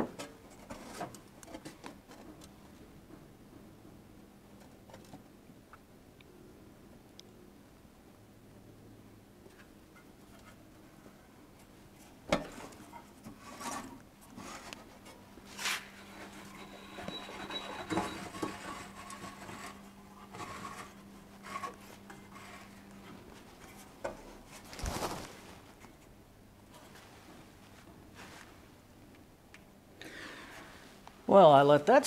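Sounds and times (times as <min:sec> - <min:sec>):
sheet metal scraping: 0:15.5 - 0:22.9.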